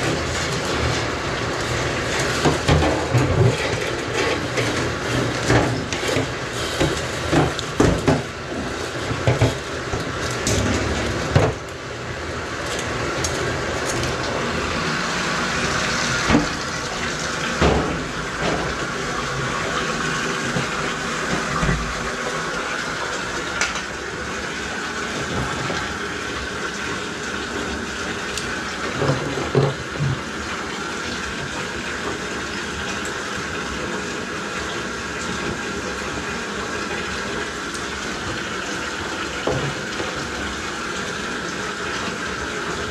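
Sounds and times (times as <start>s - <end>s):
drain cleaning machine running: 0.0s - 42.9s
cable clanking and knocking: 2.4s - 11.8s.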